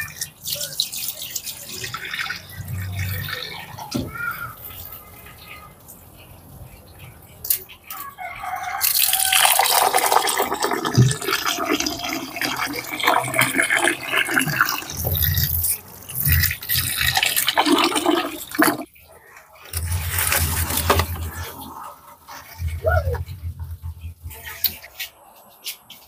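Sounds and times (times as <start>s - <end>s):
tap water pouring into metal pot: 8.8s - 18.9s, 19.6s - 21.7s.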